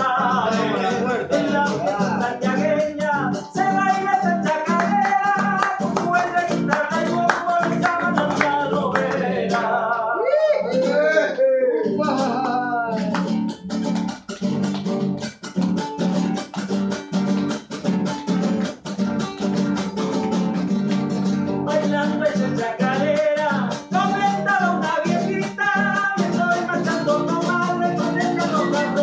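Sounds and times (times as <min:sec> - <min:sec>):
man singing: 0:00.0 - 0:13.5, 0:21.5 - 0:29.0
acoustic guitar strumming: 0:00.0 - 0:29.0.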